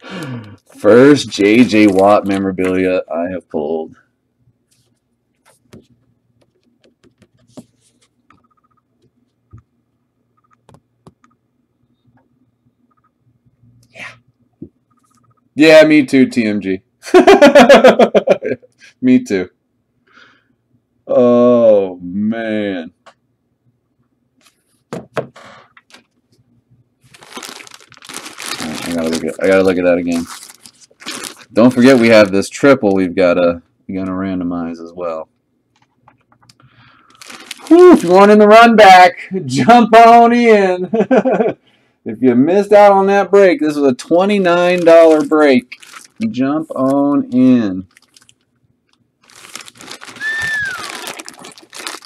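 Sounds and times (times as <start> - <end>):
plastic packaging crinkling: 0.0 - 2.8, 27.0 - 32.4, 36.8 - 38.3, 44.2 - 52.0.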